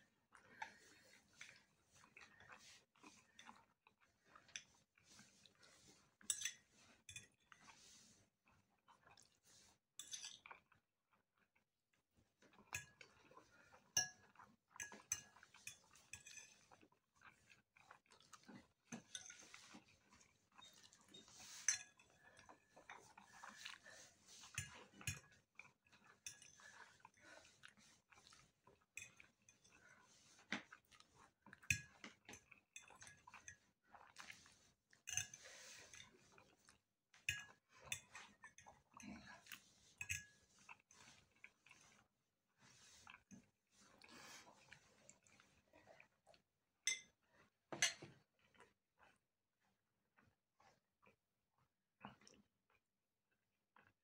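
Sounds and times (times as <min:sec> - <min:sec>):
chewing macaroni: 0:00.0 - 0:54.0
metal fork scraping a plate: 0:20.6 - 0:22.1.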